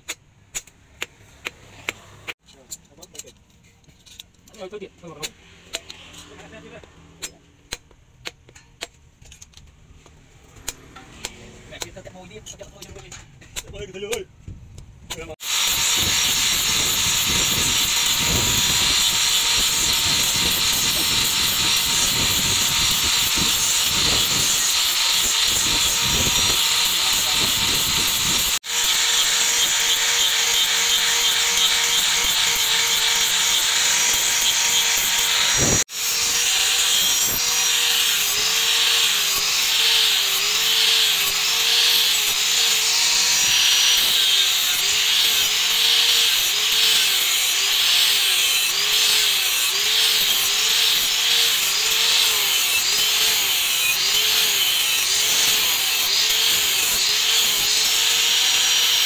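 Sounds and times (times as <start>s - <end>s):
abrasive disc grinding steel: 15.2s - 59.0s
angle grinder motor whine: 15.4s - 59.0s.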